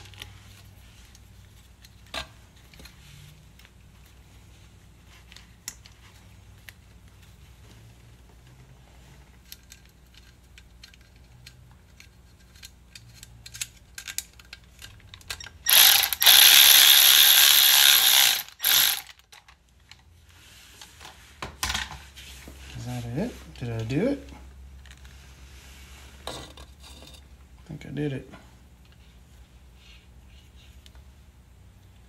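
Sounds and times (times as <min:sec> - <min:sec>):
hand ratchet clicking: 0:15.4 - 0:19.2.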